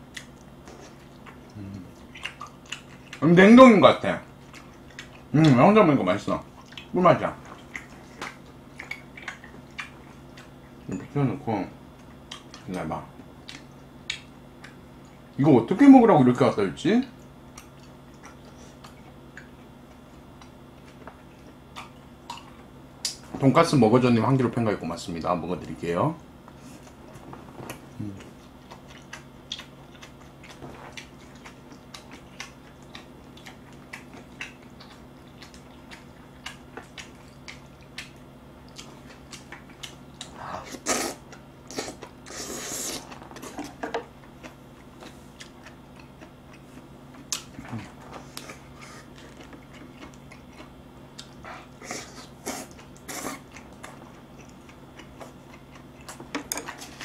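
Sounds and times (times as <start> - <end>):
chewing: 0.0 - 3.4, 4.3 - 5.6, 6.5 - 10.8, 11.9 - 12.7, 13.4 - 15.4, 17.1 - 23.3, 26.5 - 57.0
slurping noodles: 40.6 - 43.6.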